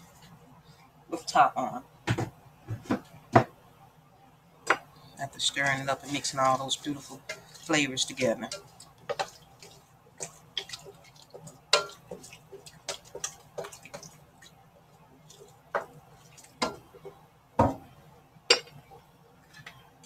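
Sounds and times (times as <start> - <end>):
spoon scraping and knocking pot: 6.0 - 14.2, 15.3 - 17.9, 18.5 - 18.8.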